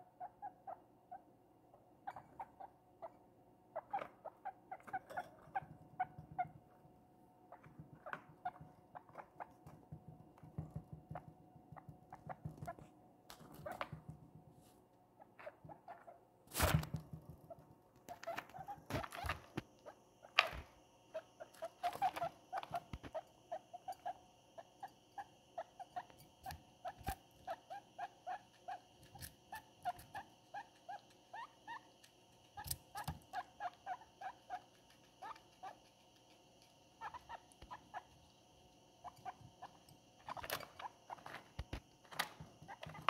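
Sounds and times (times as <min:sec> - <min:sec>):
guinea pig chewing: 0:17.5 - 0:43.0.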